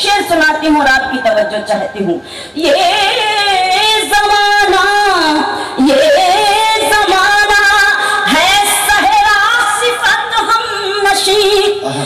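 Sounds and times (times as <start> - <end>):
woman singing with vibrato: 1.6 - 11.8.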